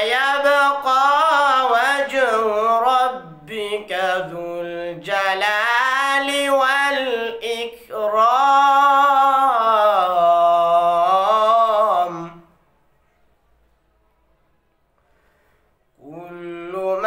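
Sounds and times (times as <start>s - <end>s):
boy reciting melodically: 0.0s - 12.5s, 16.0s - 17.0s
short breath: 14.9s - 16.0s.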